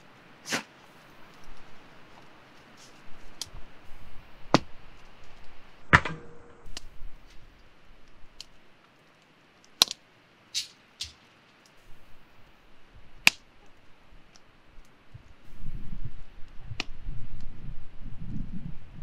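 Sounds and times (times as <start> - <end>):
hatchet splitting firewood: 4.5 - 8.6, 9.6 - 10.0, 10.6 - 11.3, 13.2 - 13.6.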